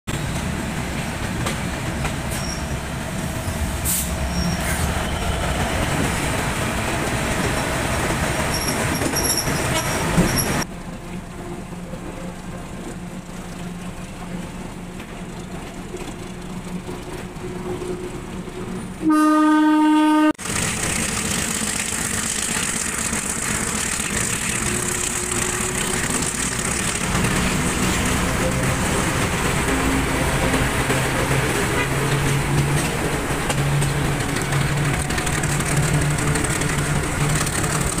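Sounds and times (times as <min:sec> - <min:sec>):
locomotive engine hum: 0:00.1 - 0:38.0
train rumbling on track: 0:00.1 - 0:38.0
locomotive horn blast: 0:19.0 - 0:20.4.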